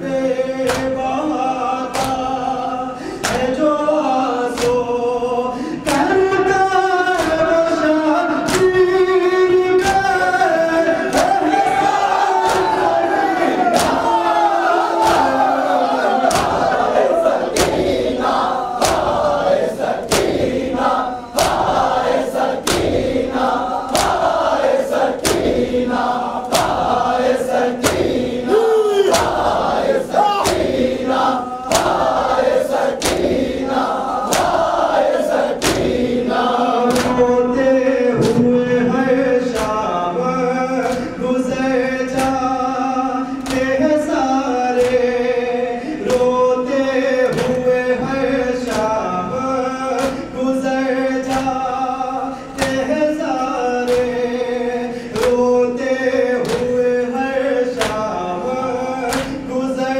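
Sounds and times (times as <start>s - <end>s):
man singing through a microphone: 0.0s - 13.1s, 36.3s - 59.9s
men chanting in unison: 0.0s - 59.9s
hands slapping chests: 0.7s - 1.0s, 1.9s - 2.3s, 3.2s - 3.6s, 4.6s - 4.9s, 5.8s - 6.2s, 7.2s - 7.4s, 8.5s - 8.8s, 11.1s - 14.2s, 14.9s - 15.5s, 16.1s - 28.4s, 29.0s - 36.1s, 36.9s - 37.2s, 39.5s - 39.8s, 43.4s - 43.8s, 44.8s - 45.1s, 50.0s - 50.3s, 51.2s - 51.6s, 52.6s - 52.8s, 53.9s - 54.2s, 55.2s - 55.4s, 56.4s - 56.8s, 57.8s - 58.1s, 59.1s - 59.4s.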